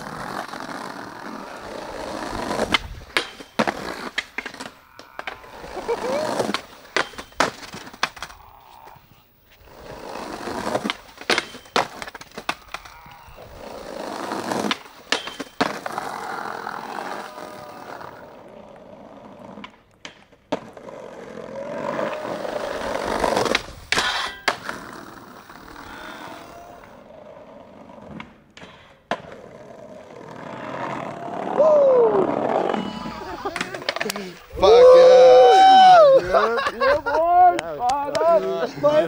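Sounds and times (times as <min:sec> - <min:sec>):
skateboard clacking on ground: 0:00.0 - 0:09.0, 0:09.7 - 0:25.8, 0:26.8 - 0:31.6, 0:32.3 - 0:34.5
skateboard rolling on brick: 0:00.0 - 0:35.9
skateboard pop crack: 0:14.4 - 0:16.0
trucks scraping metal rail: 0:22.1 - 0:26.5.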